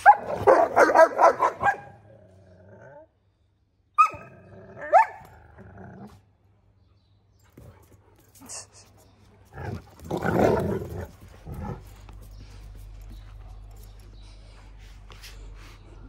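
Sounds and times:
puppy barks: 0:00.0 - 0:02.0, 0:04.0 - 0:05.2
puppies growling: 0:09.4 - 0:16.0.

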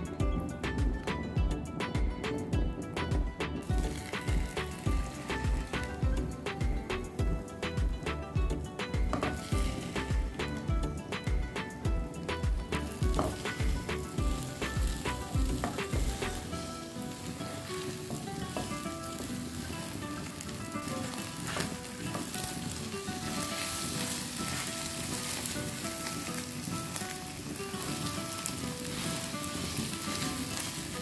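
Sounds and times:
eggs sizzling in a frying pan: 0:00.0 - 0:31.0
spatula stirring eggs: 0:23.3 - 0:25.5.

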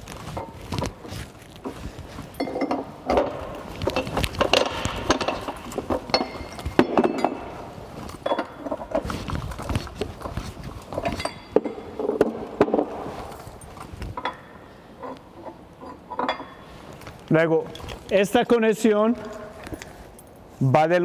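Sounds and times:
wrench clanking on metal: 0:02.3 - 0:07.6.

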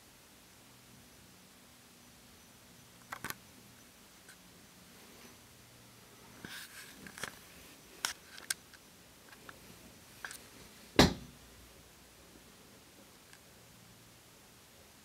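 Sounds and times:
camera handling clicks and rustles: 0:03.0 - 0:03.4, 0:06.5 - 0:07.4, 0:08.0 - 0:09.6
sharp knock: 0:11.0 - 0:11.4.

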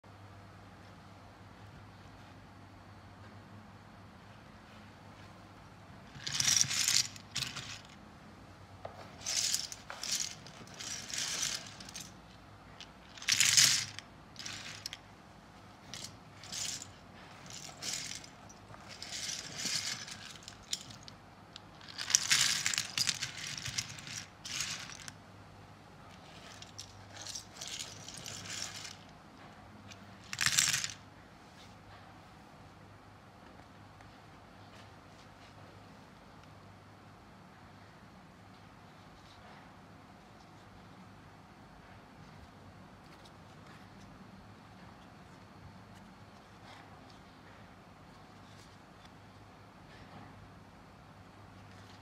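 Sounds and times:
wooden puzzle pieces clattering: 0:06.1 - 0:08.0, 0:09.2 - 0:12.2, 0:12.8 - 0:15.0, 0:15.8 - 0:21.1, 0:21.8 - 0:25.1, 0:26.2 - 0:29.1, 0:30.2 - 0:31.0.

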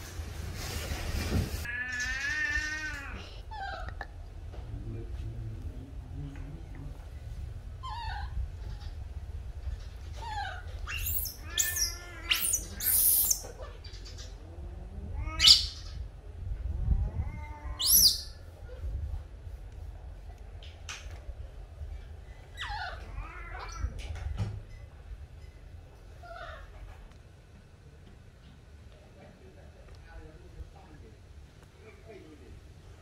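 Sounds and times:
small animal squealing and mewing: 0:01.6 - 0:04.0, 0:07.8 - 0:09.0, 0:10.1 - 0:16.0, 0:17.0 - 0:18.4, 0:22.6 - 0:24.0.

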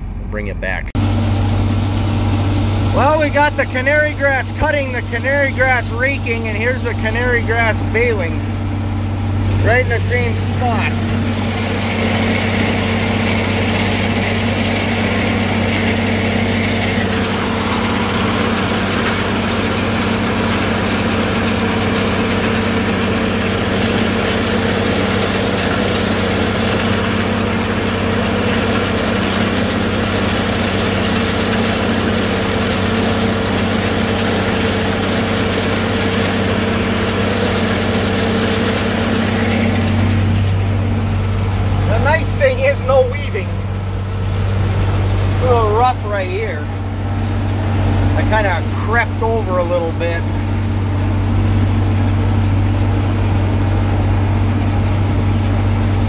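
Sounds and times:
tractor diesel engine under load: 0:00.0 - 0:56.0
higher band of sound: 0:01.8 - 0:19.7.

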